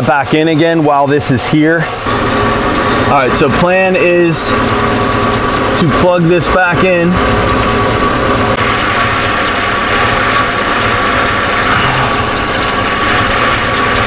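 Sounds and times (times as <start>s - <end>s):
truck engine idling: 1.5s - 14.0s.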